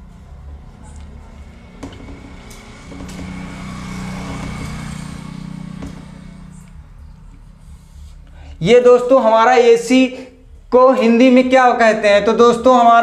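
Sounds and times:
motor vehicle passing by: 0:00.0 - 0:08.3
marker tapping on whiteboard: 0:01.8 - 0:04.9, 0:05.7 - 0:06.1.

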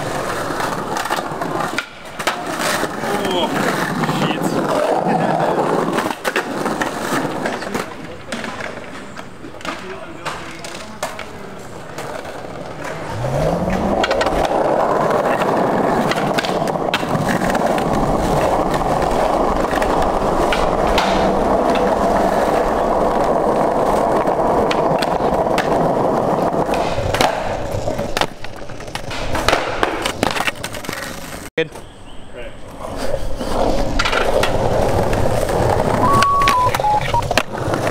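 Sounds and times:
skateboard wheels rolling on tiles: 0:00.0 - 0:31.8, 0:32.6 - 0:37.9
skateboard clacking on ground: 0:00.0 - 0:31.9, 0:32.6 - 0:37.9.

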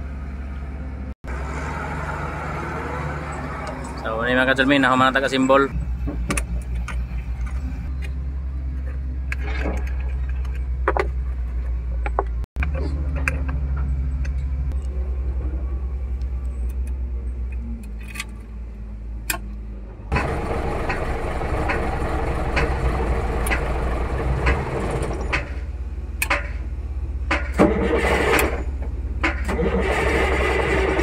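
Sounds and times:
diesel engine cranking on starter: 0:20.1 - 0:31.0.

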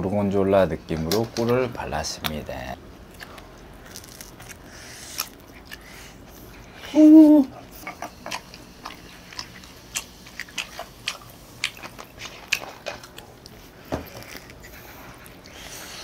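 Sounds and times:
chewing pizza: 0:00.9 - 0:16.0
crisp crunches and mouth clicks: 0:02.2 - 0:05.9
person humming: 0:06.8 - 0:07.6.

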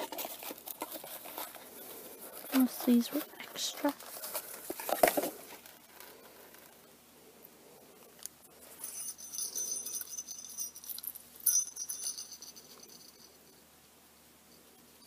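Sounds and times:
paper packaging crinkling: 0:00.0 - 0:06.8
small bell jingling: 0:08.7 - 0:13.4.

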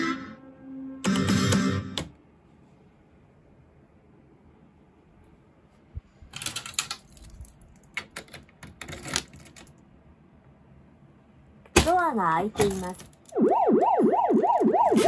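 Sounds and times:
key rattling in lock: 0:06.3 - 0:09.8.

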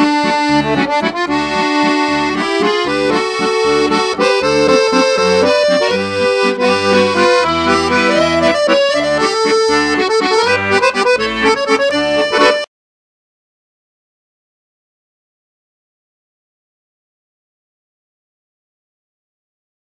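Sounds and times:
accordion music: 0:00.0 - 0:12.7.

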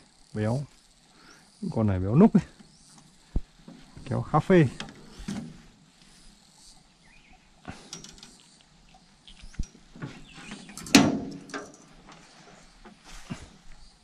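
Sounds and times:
loud knock and rustle: 0:10.8 - 0:11.8.

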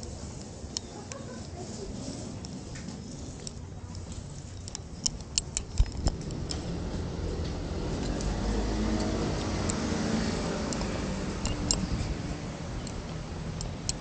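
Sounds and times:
traffic rumble: 0:00.0 - 0:14.0
vehicle engine hum passing: 0:05.8 - 0:14.0.

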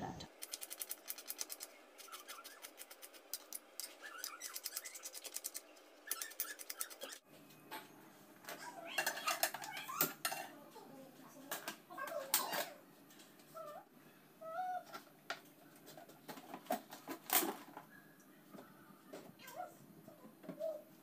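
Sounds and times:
frying pans clattering on stovetop: 0:08.5 - 0:10.6.

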